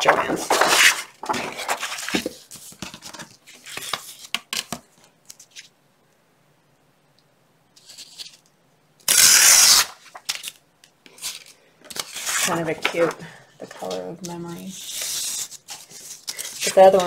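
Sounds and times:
paper ripping: 0:00.0 - 0:04.3, 0:09.1 - 0:17.0
paper rustling: 0:00.0 - 0:05.7, 0:09.4 - 0:17.0.

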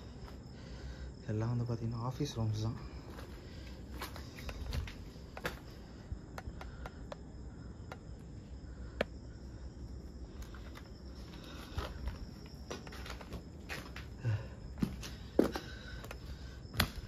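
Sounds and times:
crickets chirping: 0:00.0 - 0:17.0
footsteps crunching on rubble: 0:03.0 - 0:05.7, 0:10.4 - 0:14.2, 0:14.8 - 0:15.8.

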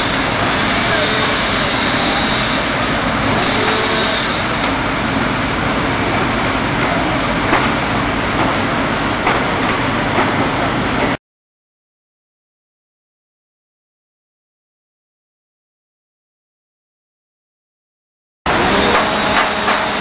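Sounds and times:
fire engine engines running: 0:00.0 - 0:11.2, 0:18.5 - 0:20.0.

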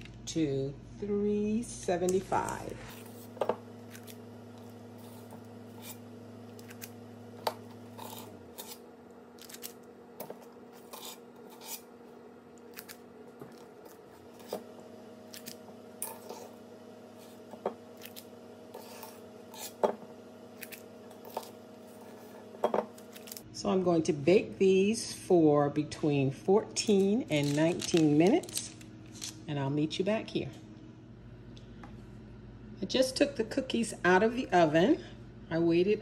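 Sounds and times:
cookie scoop clicks and scrapes: 0:10.8 - 0:11.8.

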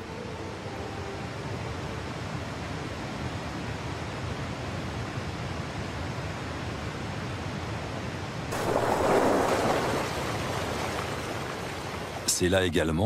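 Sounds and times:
water rushing over rapids: 0:08.5 - 0:12.3.

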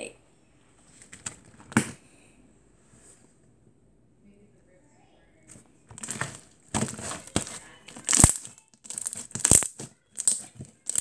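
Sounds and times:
slime squelching: 0:05.9 - 0:11.0
air bubbles popping in slime: 0:07.9 - 0:11.0.

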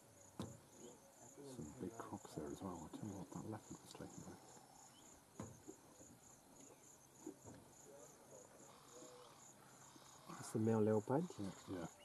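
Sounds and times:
faint insect chirping: 0:00.0 - 0:12.0
soft knocks: 0:05.4 - 0:05.8.

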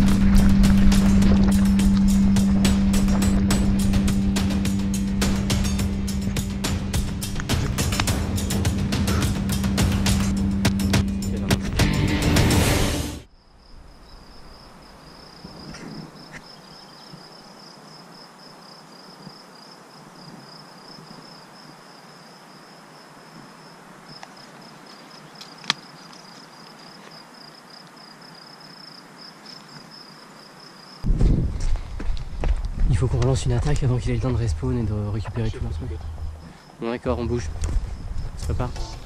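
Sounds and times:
cricket trilling: 0:13.3 - 0:31.1, 0:33.8 - 0:39.0.

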